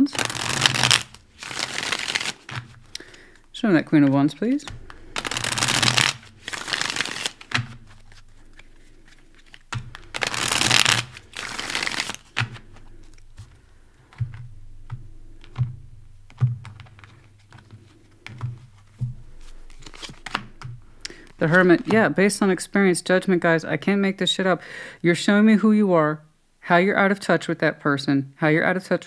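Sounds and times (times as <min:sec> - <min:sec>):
cards being shuffled: 0:00.0 - 0:22.2
cards clicking on table: 0:16.3 - 0:18.8.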